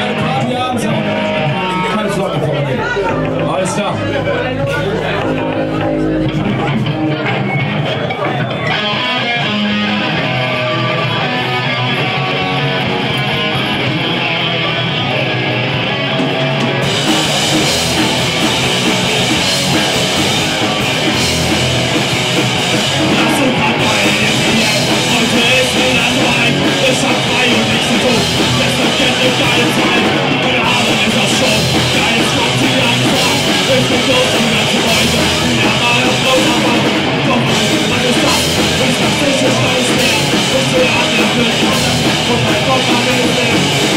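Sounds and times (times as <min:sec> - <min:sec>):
distorted electric guitars: 0:00.0 - 0:43.9
drum kit with cymbals: 0:16.2 - 0:43.9.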